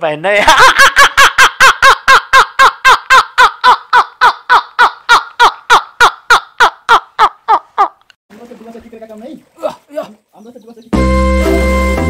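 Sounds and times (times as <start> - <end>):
man laughing hard: 0.4 - 8.0.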